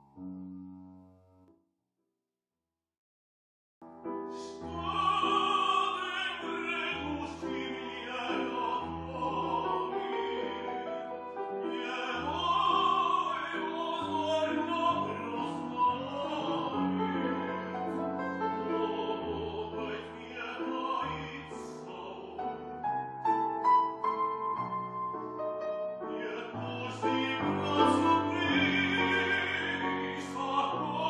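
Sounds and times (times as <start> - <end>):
piano accompaniment: 0.0 - 1.6, 3.8 - 31.0
operatic tenor singing: 4.3 - 22.9, 26.0 - 31.0.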